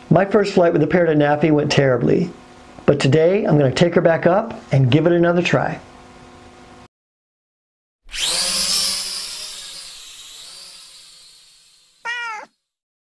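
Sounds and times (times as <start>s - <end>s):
short cat meow: 12.0s - 12.6s.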